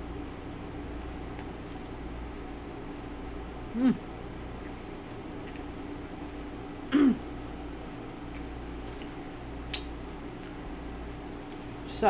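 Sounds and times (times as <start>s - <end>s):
mouth and chewing clicks: 4.6s - 6.1s, 8.3s - 10.6s, 11.4s - 11.7s
throat clearing: 6.9s - 7.3s.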